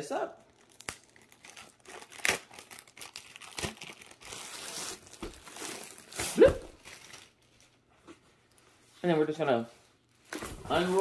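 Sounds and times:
paper wrapping rustling: 0.4 - 8.7.

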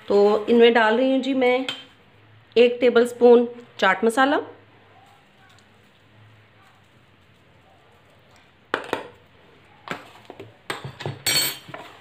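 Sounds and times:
kitchen utensils clinking: 9.9 - 12.0.

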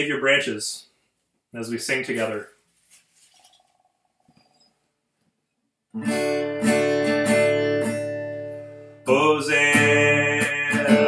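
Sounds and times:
faint small sounds: 0.8 - 5.9
acoustic guitar strumming: 6.0 - 11.0.

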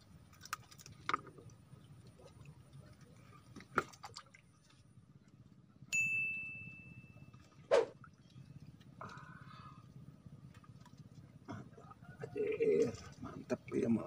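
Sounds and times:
bright ding: 5.9 - 7.3.

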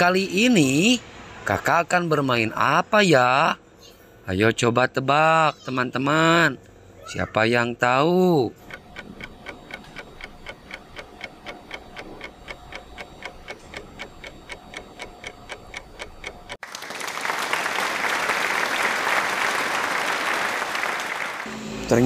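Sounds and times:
clock ticking: 7.8 - 16.6
applause: 16.6 - 21.5.

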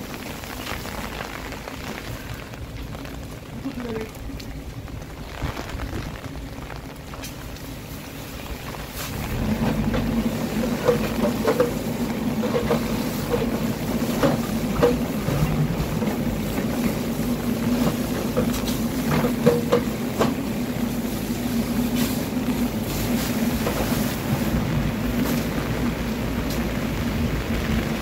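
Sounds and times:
fire hose spraying: 0.0 - 4.1, 5.1 - 28.0
burning timber cracking: 0.0 - 28.0
engine droning: 1.3 - 28.0.

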